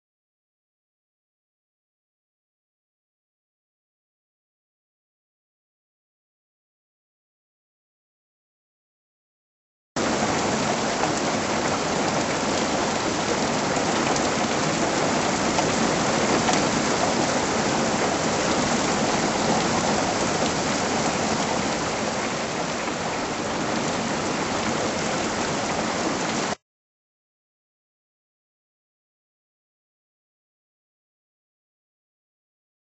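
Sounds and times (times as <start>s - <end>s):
heavy rain pouring: 10.0s - 26.6s.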